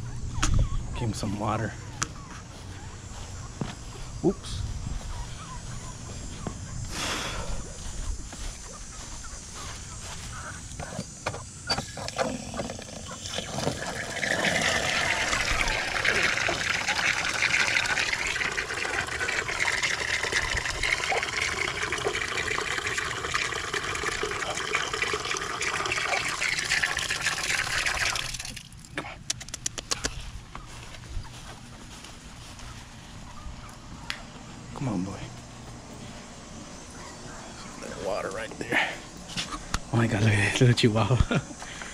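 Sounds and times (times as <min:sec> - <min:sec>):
water pouring into a bowl: 0:12.9 - 0:28.7
sharp clicks: 0:29.2 - 0:30.2.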